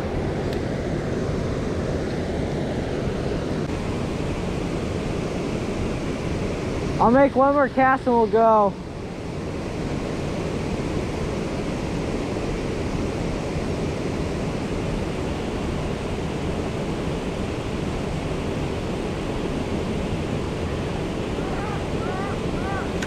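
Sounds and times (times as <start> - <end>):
creek rushing over cascade: 9.5 - 23.0.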